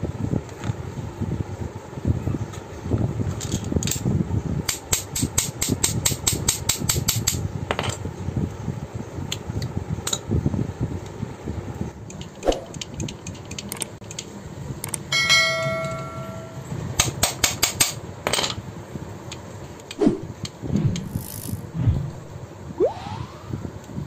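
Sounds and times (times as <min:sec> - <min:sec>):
bell-like ding: 0:15.1 - 0:16.7.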